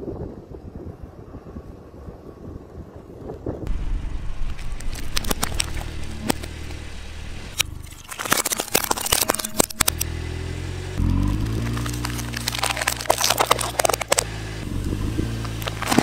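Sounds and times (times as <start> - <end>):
low engine hum: 3.4 - 16.0
steady low drone: 3.6 - 16.0
tyre crushing plastic cups: 7.8 - 10.0, 11.5 - 14.3.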